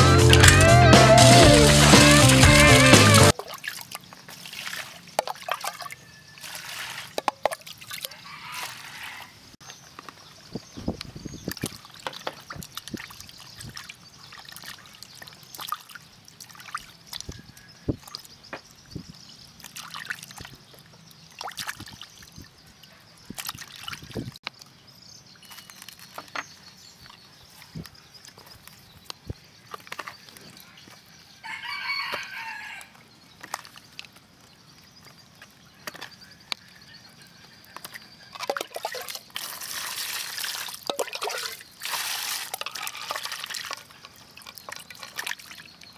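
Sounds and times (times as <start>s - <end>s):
water pouring into basin: 1.4s - 8.1s, 38.3s - 45.9s
water splashing in plastic basin: 1.4s - 8.8s, 11.4s - 17.4s, 19.6s - 20.6s, 21.3s - 22.4s, 23.3s - 24.4s, 37.8s - 45.9s
rooster crowing: 8.1s - 9.4s, 31.4s - 33.0s.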